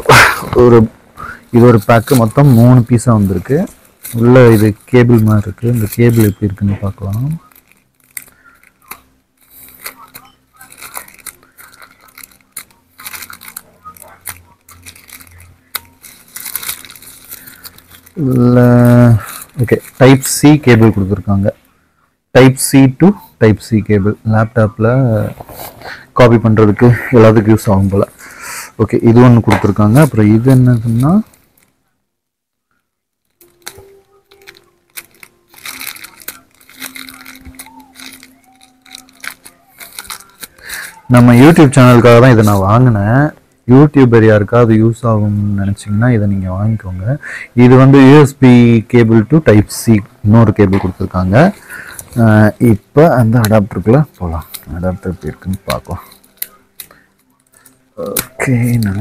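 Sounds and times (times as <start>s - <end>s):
plastic packaging rustling: 0.5s - 21.4s, 28.8s - 31.8s, 33.2s - 43.3s, 49.3s - 59.0s.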